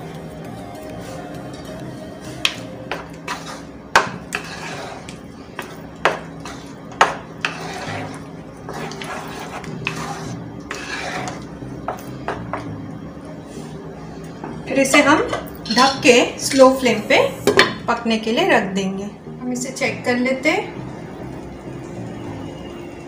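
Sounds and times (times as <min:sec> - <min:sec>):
light background music: 0:00.0 - 0:23.0
spoon scraping and knocking pan: 0:02.4 - 0:12.8, 0:14.5 - 0:16.2.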